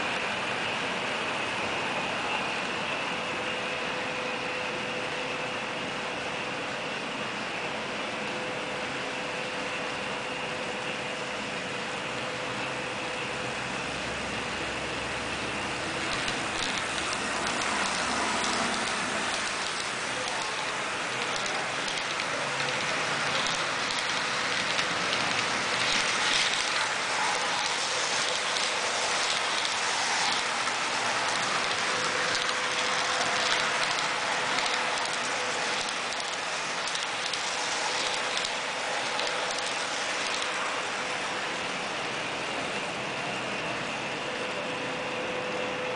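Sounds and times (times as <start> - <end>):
model train wheels rolling: 13.0 - 42.6.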